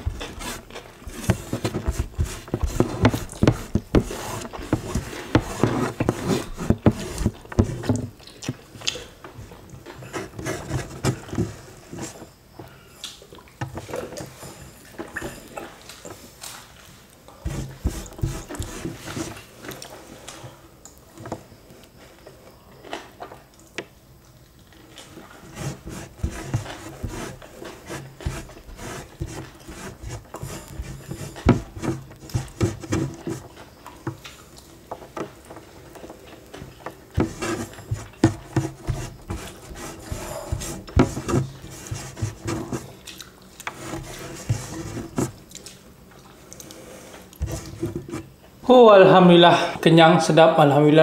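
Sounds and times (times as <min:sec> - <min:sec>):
fingertips scraping wooden tray: 0:00.0 - 0:08.2, 0:10.0 - 0:12.3, 0:17.5 - 0:19.5, 0:25.4 - 0:33.6, 0:37.1 - 0:43.0, 0:43.6 - 0:45.4, 0:47.4 - 0:48.3
close-up chewing: 0:07.4 - 0:10.1, 0:42.8 - 0:43.8, 0:45.2 - 0:47.4.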